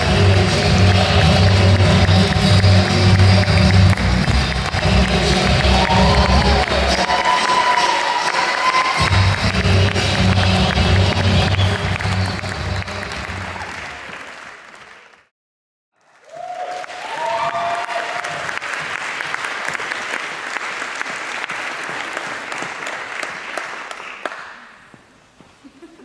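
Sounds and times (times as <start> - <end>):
dance music: 0.0 - 13.7
audience applauding: 0.0 - 15.3, 16.0 - 24.8.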